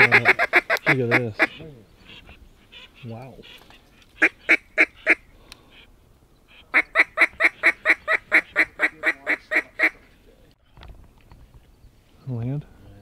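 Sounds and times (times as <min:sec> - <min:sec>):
honk-like waterfowl calls: 0:00.0 - 0:05.9, 0:06.5 - 0:10.0.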